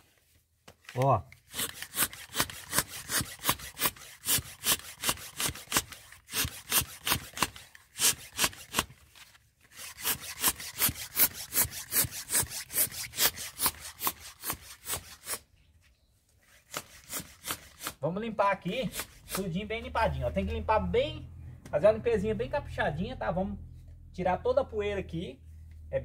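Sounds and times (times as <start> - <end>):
hand pump puffing air: 1.4 - 8.9, 9.7 - 15.4.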